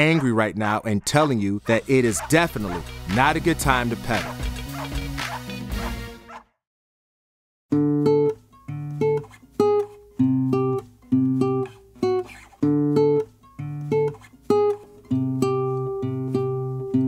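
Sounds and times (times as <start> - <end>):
acoustic guitar strumming: 7.7 - 17.0.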